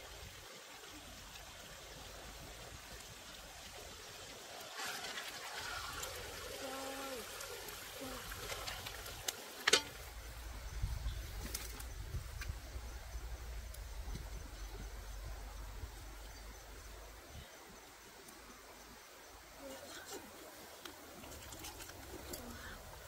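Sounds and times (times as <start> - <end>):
stream trickling: 0.0 - 23.0
cooing calls: 21.5 - 22.9.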